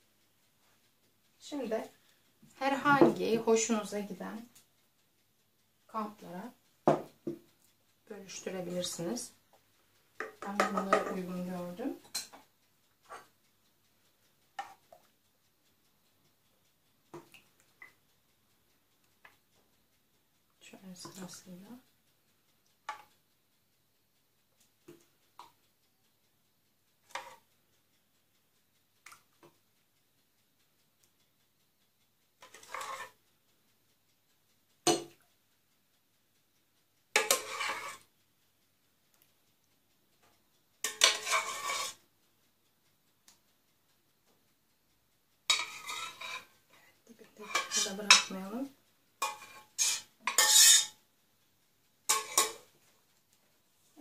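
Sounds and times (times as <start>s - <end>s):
metal clinking on glass cups: 49.3s - 51.0s.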